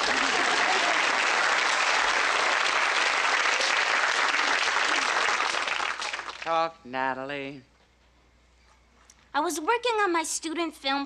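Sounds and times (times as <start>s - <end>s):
studio audience applauding: 0.0s - 6.6s.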